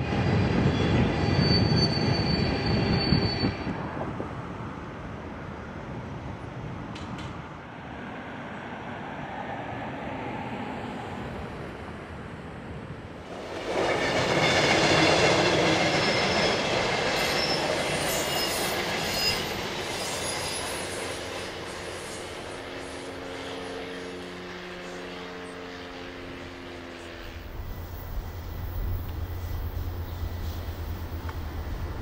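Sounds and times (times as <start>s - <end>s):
train rumbling over bridge: 0.0s - 32.0s
high wheel squeal: 0.4s - 3.8s, 13.6s - 32.0s.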